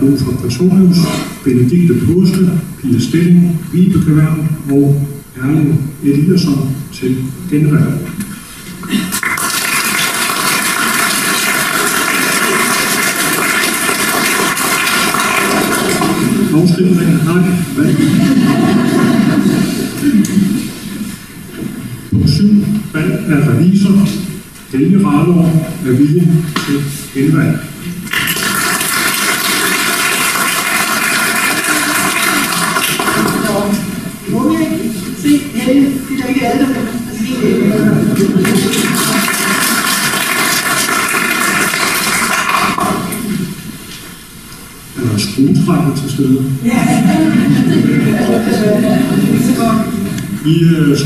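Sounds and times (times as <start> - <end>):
audience applauding: 9.1 - 16.5, 28.1 - 33.7, 38.2 - 43.2.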